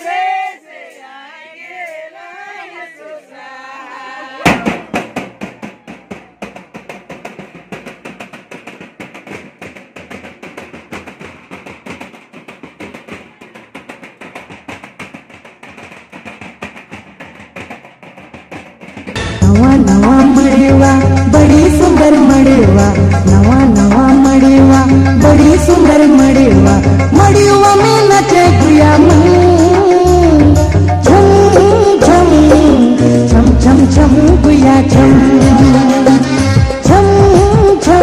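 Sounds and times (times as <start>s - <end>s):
group singing folk song: 0.0s - 4.8s
drum beaten with sticks: 4.4s - 38.0s.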